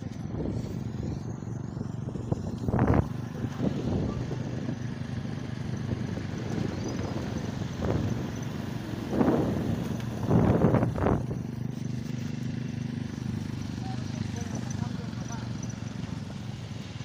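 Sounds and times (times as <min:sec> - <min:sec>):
wind noise on microphone: 0:00.0 - 0:11.6
motorbike engine running: 0:00.0 - 0:17.0.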